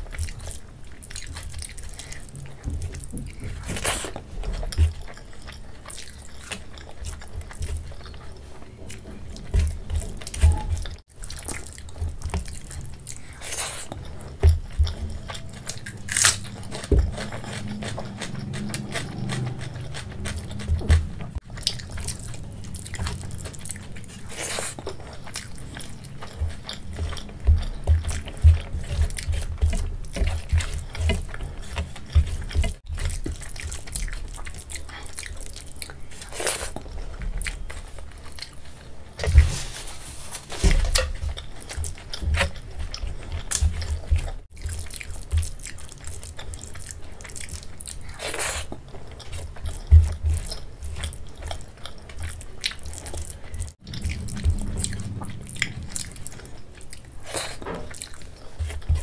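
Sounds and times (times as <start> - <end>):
fingers squishing food: 0.0 - 39.5
wet chewing and mouth smacks: 0.0 - 39.6, 40.6 - 59.0.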